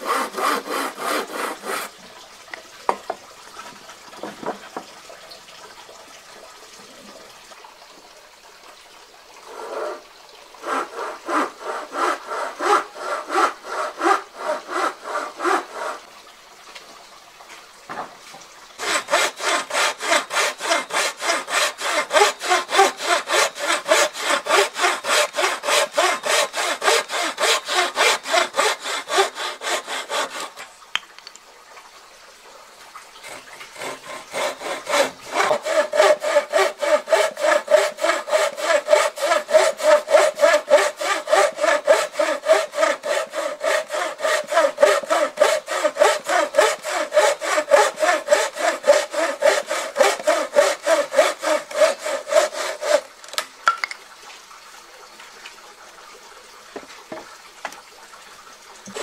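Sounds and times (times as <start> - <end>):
hand saw cutting wood: 0.0 - 2.0, 9.5 - 10.0, 10.6 - 16.1, 18.8 - 30.7, 33.2 - 53.2.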